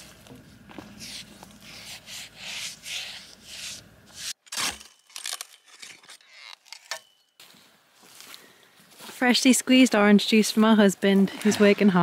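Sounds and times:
brush strokes on wood: 0.0s - 4.4s.

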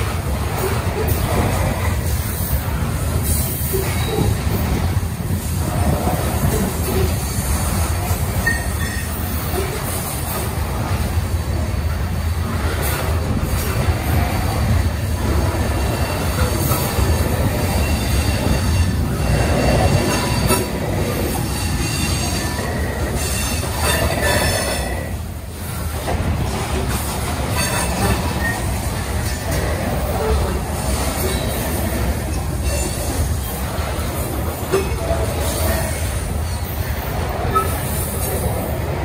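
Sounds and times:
train wheels rumbling on rails: 0.0s - 39.0s
high wheel squeal: 8.4s - 10.0s, 15.7s - 25.1s.

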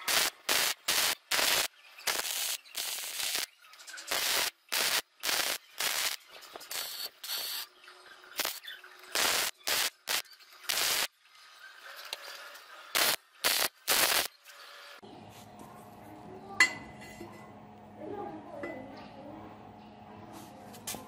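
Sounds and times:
arc welder crackling: 0.0s - 11.1s, 11.9s - 15.0s.

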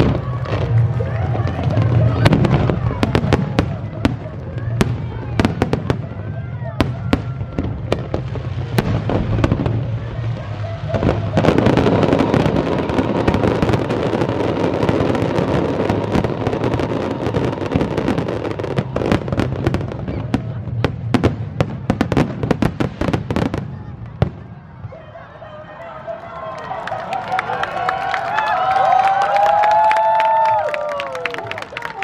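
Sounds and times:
fireworks bursting and crackling: 0.0s - 24.9s.

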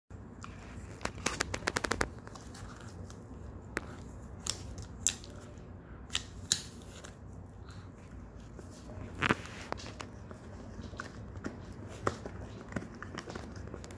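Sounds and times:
dog gnawing a horn: 9.7s - 13.9s.

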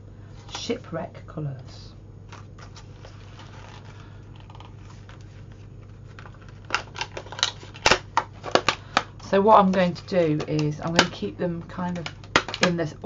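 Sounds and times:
low steady hum: 0.0s - 13.0s
plastic clicks and crackles: 6.1s - 13.0s.

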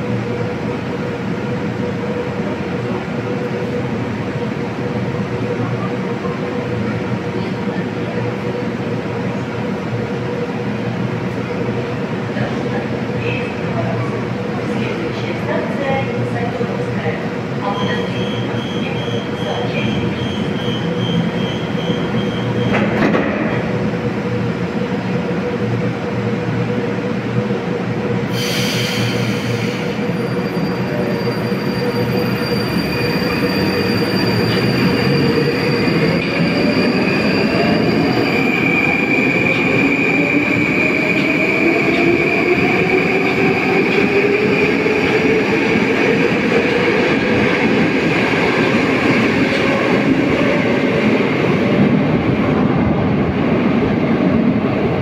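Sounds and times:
train wheels on rails: 10.4s - 55.0s
air hiss: 28.3s - 30.0s.

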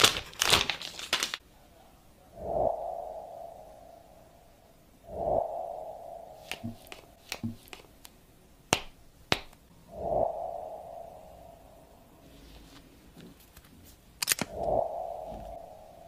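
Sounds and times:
soft whooshes: 2.3s - 7.6s, 9.8s - 13.0s, 14.5s - 16.0s.

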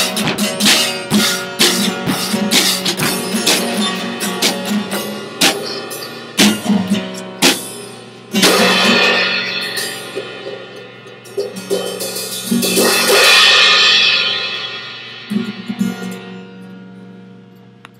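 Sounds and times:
drum hits: 0.0s - 7.8s, 8.4s - 16.1s
cymbal crashes: 7.4s - 16.4s.

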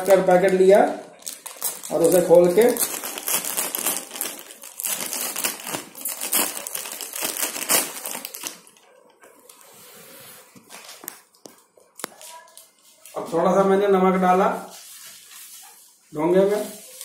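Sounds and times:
plastic packet crinkling: 0.0s - 9.7s.

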